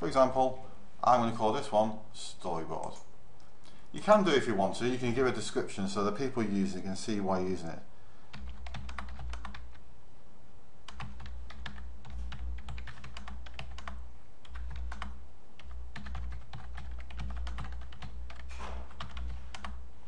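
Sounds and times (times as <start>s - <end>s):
typing on a computer keyboard: 8.3s - 9.8s, 10.9s - 19.8s.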